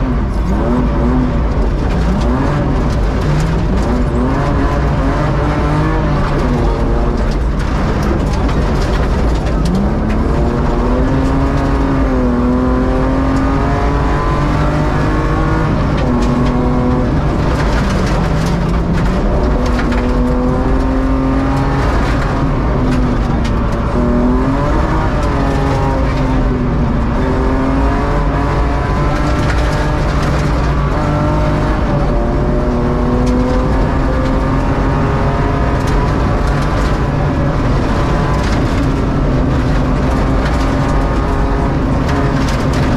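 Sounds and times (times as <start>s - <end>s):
gravel rattling against car: 0.0s - 42.9s
rally car engine revving: 0.0s - 42.9s.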